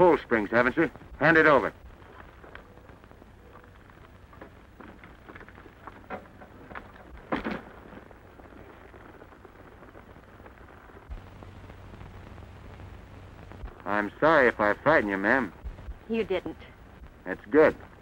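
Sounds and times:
old film soundtrack hiss and hum: 0.0 - 18.0
small knocks and rustles: 4.3 - 8.1.

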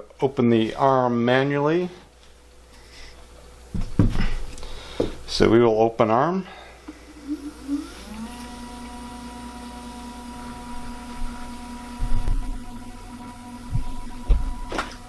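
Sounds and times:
telescope motor whirring: 6.9 - 15.0
low thumps: 12.0 - 12.8, 13.6 - 15.0.

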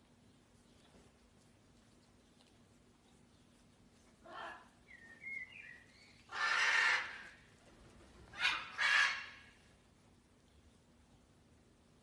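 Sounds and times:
macaw squawking: 8.4 - 9.4.

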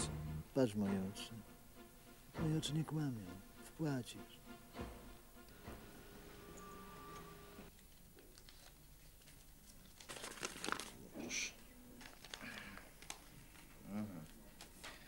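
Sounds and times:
paper rustling: 7.7 - 11.0, 12.0 - 13.7.

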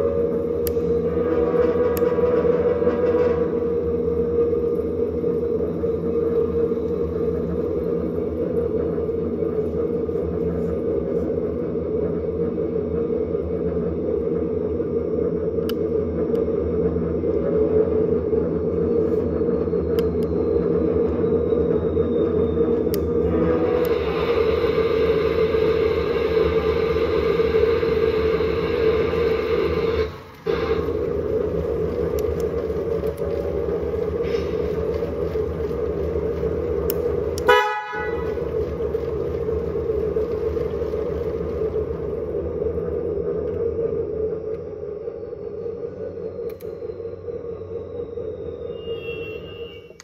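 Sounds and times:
diesel engine rumble: 0.0 - 50.0
air horn toot: 1.1 - 3.7, 23.2 - 24.1, 37.4 - 38.7, 48.7 - 50.0.

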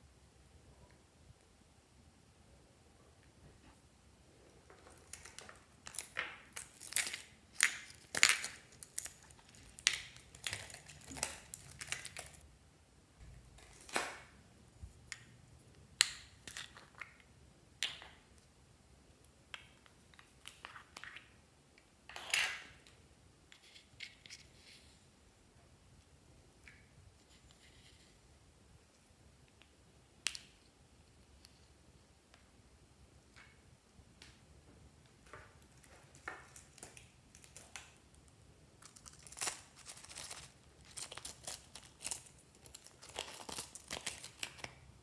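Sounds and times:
plastic pots clicking and crinkling: 4.6 - 12.4, 35.0 - 38.2, 38.8 - 44.9.

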